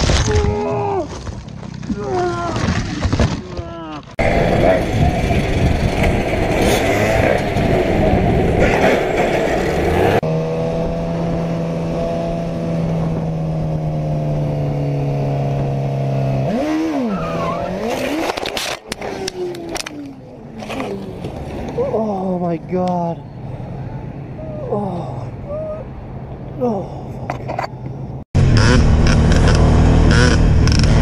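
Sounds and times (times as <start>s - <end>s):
motorcycle crash knocks and scrapes: 1.1s - 7.8s
wind noise: 4.2s - 14.8s
dirt bike engine running hard: 4.2s - 16.7s, 28.4s - 31.0s
sport bike engine revving: 4.2s - 20.8s, 28.4s - 31.0s.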